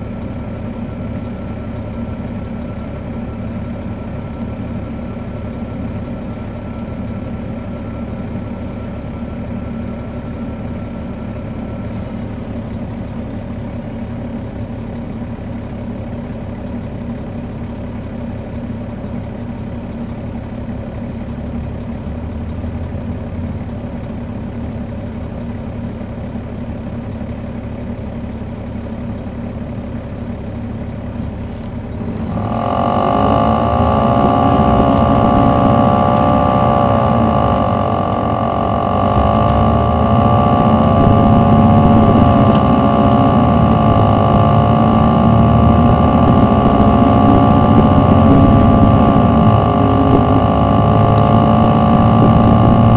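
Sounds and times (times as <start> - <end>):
bus diesel engine running: 0.0 - 52.9.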